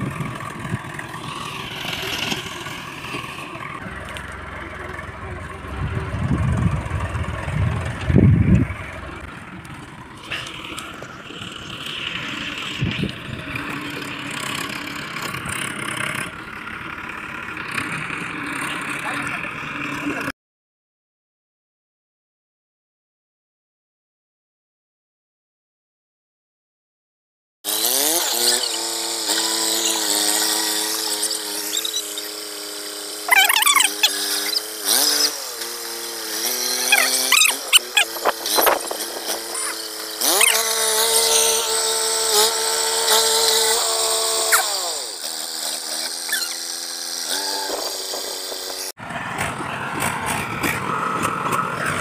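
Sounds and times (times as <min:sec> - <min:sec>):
rough noisy rumble: 0:00.0 - 0:20.3
tractor diesel engine revving: 0:00.0 - 0:20.3, 0:27.7 - 0:52.0.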